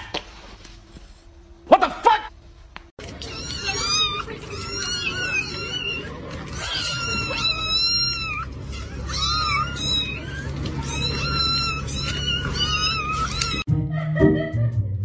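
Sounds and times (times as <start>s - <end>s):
kittens meowing: 3.1s - 13.7s.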